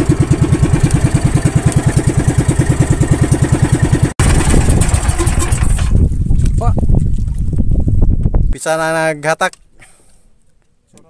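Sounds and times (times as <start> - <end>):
boat engine puttering: 0.0 - 6.7
rough windy engine noise: 0.0 - 8.6.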